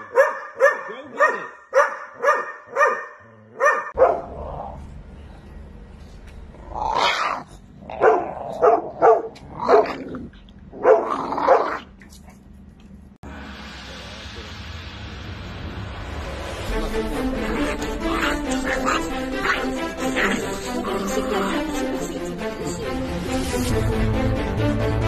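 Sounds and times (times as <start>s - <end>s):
large dog barking: 0.0s - 4.4s, 7.0s - 10.1s, 10.7s - 11.8s
small dog growling and barking: 2.2s - 4.9s, 6.6s - 12.4s, 16.8s - 22.1s
steady low rumble: 4.0s - 6.8s, 11.9s - 21.1s.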